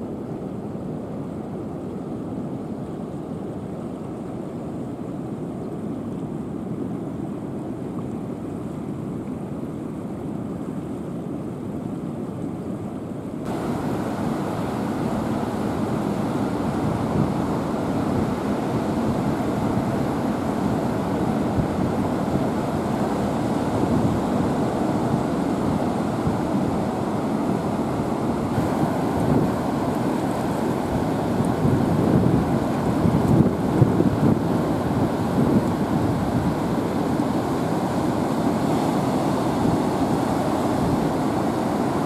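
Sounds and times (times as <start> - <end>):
ocean surf on rocks: 13.4 - 42.0
wind on microphone: 13.5 - 42.0.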